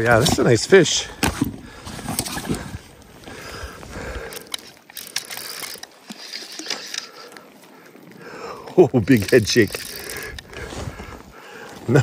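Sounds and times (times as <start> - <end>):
fishing reel clicking: 4.1 - 7.5, 9.0 - 10.6.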